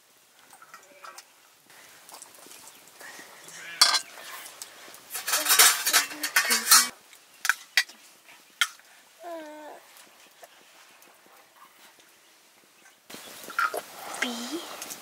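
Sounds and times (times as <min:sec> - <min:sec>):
metal utensils clinking on dishes: 0:03.8 - 0:04.5, 0:05.1 - 0:07.9.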